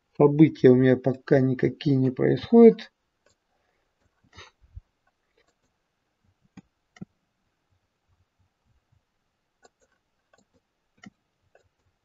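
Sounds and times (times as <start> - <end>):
mouse and keyboard clicks: 9.6 - 11.9.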